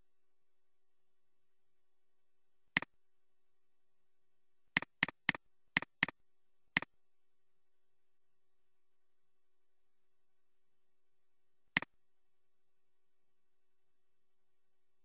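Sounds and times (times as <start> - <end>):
computer mouse clicks: 4.8 - 6.1.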